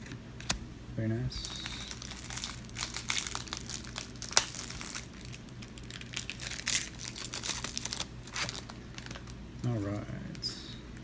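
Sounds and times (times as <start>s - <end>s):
foil wrapper crinkling and tearing: 1.4s - 9.4s.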